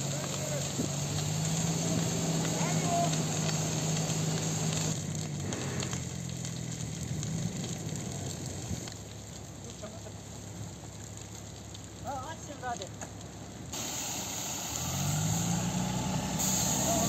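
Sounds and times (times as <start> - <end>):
engine humming: 0.0 - 9.6, 13.7 - 17.0
fire burning with a hiss: 0.0 - 17.0
fire hose spraying water: 0.0 - 17.0.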